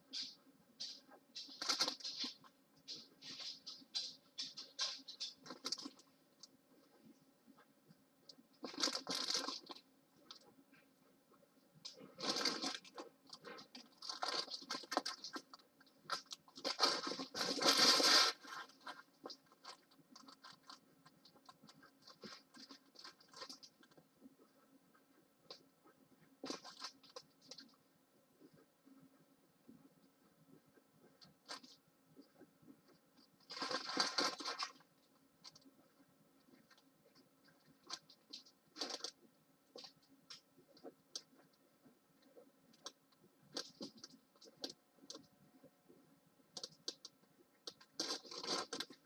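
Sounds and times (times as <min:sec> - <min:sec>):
plastic film crinkling: 0:00.1 - 0:06.2, 0:08.6 - 0:10.4, 0:11.8 - 0:24.0, 0:33.4 - 0:35.7, 0:37.5 - 0:41.2, 0:46.6 - 0:49.0.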